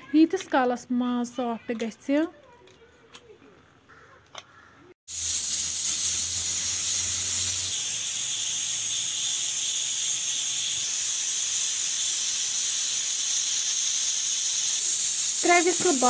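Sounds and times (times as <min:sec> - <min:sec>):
pressure cooker steam hiss: 0:05.1 - 0:16.0.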